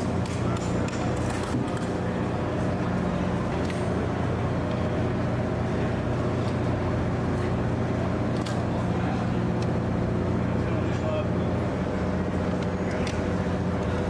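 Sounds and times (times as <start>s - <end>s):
ship machinery drone: 0.0s - 14.0s
faint motor clicks: 8.2s - 8.8s, 9.4s - 9.9s, 12.2s - 14.0s.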